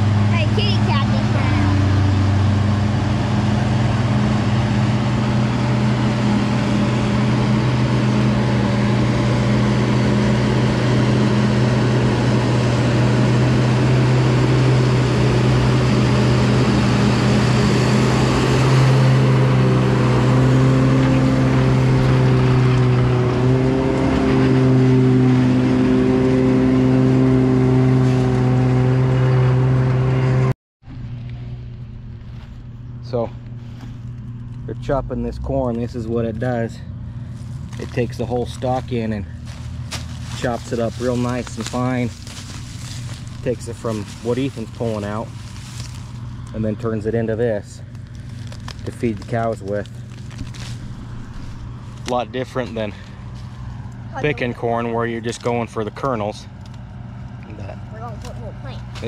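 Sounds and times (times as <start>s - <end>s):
heavy machinery engine under load: 0.0s - 47.0s.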